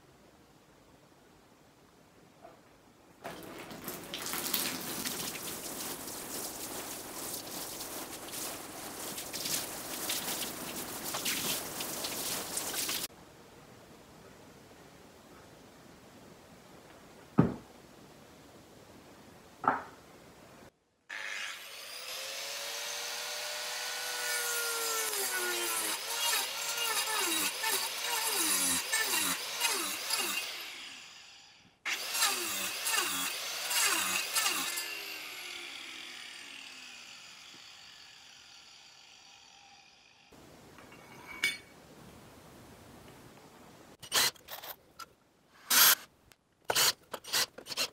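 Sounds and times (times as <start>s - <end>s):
angle grinder cutting wood: 21.1s - 40.3s, 45.6s - 46.1s.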